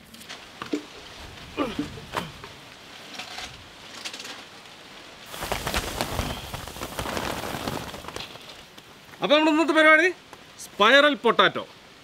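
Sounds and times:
potatoes tumbling and knocking: 5.3 - 8.8
sack rustling: 5.3 - 8.8.

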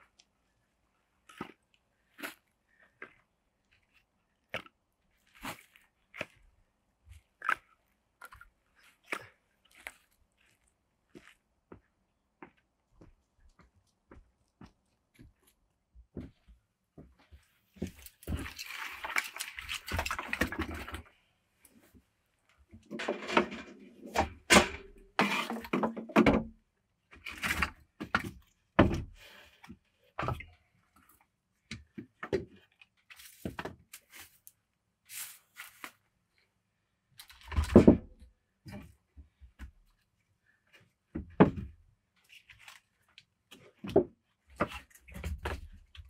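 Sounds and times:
objects being handled: 17.2 - 26.3.

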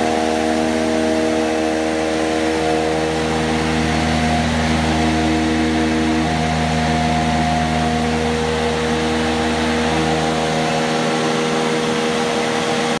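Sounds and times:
centrifuge whine: 0.0 - 13.0
deep hum: 0.0 - 13.0.

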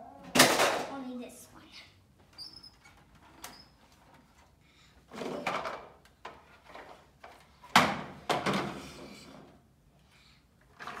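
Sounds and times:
toy truck rolling and scraping: 10.6 - 11.0.

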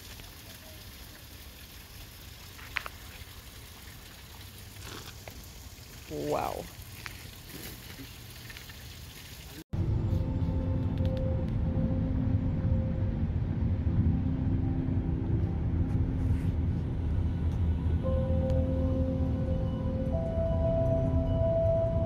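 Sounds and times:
pond water hiss: 0.0 - 10.2
car road and engine rumble: 9.6 - 22.0.

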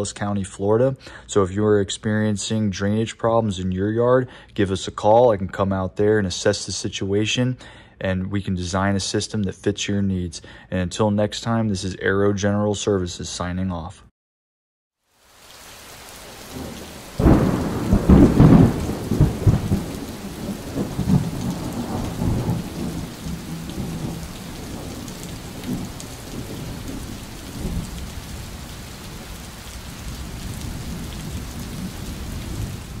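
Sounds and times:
steady rain: 15.0 - 33.0
thunder clap and rumble: 16.5 - 33.0.

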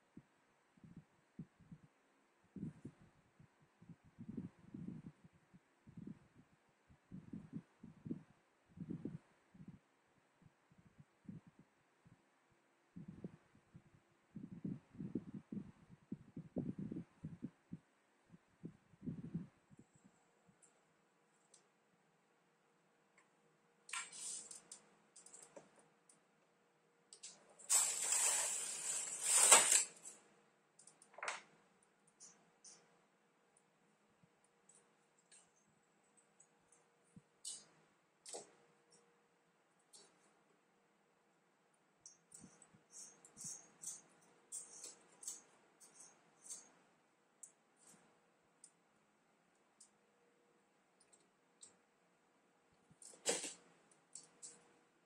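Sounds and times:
needle clicks and scrapes: 23.9 - 25.7, 27.1 - 30.2, 37.4 - 38.6, 42.3 - 46.8, 53.0 - 54.7
knitting machine carriage sliding: 27.6 - 30.2.

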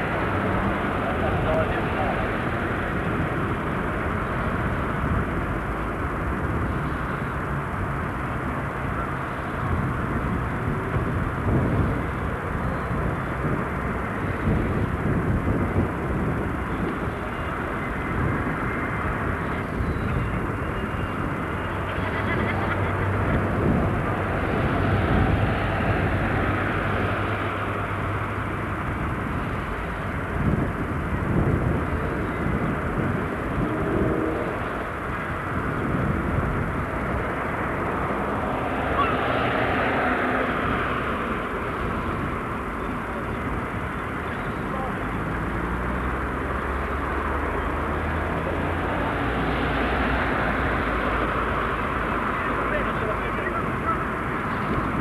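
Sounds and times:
outdoor background noise: 0.0 - 55.0
steady engine-like drone: 0.0 - 55.0
faint voices: 0.9 - 3.1, 38.3 - 45.7, 47.4 - 55.0.

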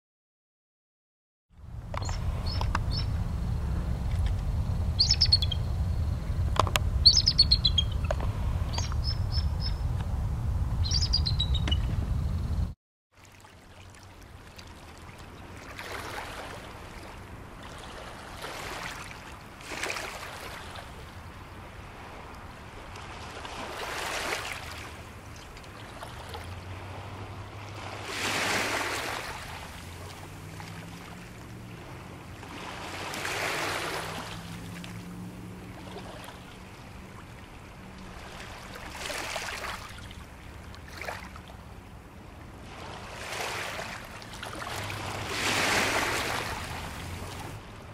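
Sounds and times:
faint low engine drone: 1.5 - 12.8
small waves washing onto shore: 13.1 - 47.9.

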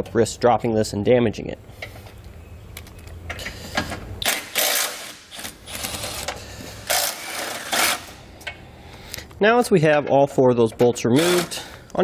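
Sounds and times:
cordless ratchet running: 11.2 - 11.6.

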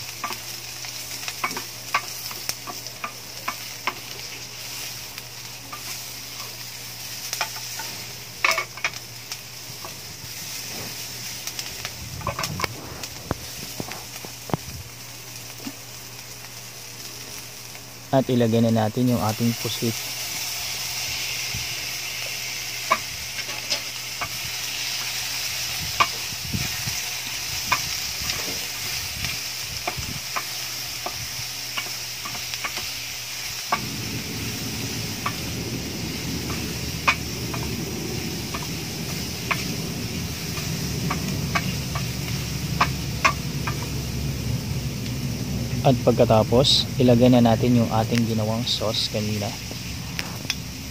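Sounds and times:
food sizzling in a pan: 0.0 - 50.9
low steady hum: 33.6 - 50.9.

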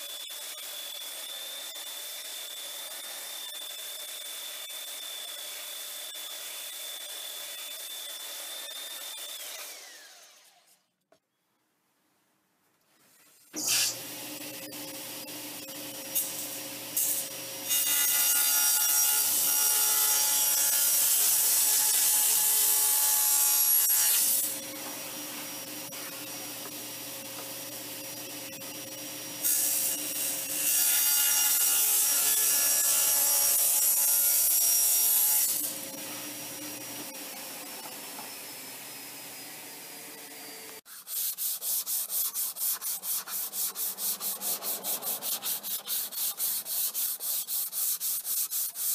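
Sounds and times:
table saw cutting wood: 0.0 - 10.7, 13.6 - 48.9
saw winding down: 5.9 - 10.8
hand rubbing wooden board: 40.9 - 48.9.

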